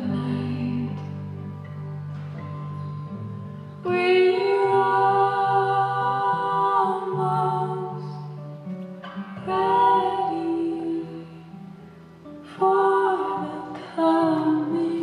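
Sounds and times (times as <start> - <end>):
woman singing lead: 0.0 - 1.6, 3.8 - 8.5, 9.2 - 11.6, 12.3 - 15.0
acoustic guitar: 0.0 - 15.0.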